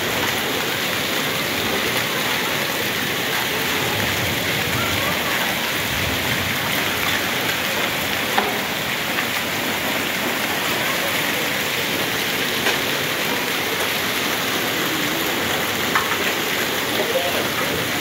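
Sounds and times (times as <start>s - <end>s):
hailstones ticking on pavement: 0.0s - 18.0s
heavy rain hissing: 0.0s - 18.0s.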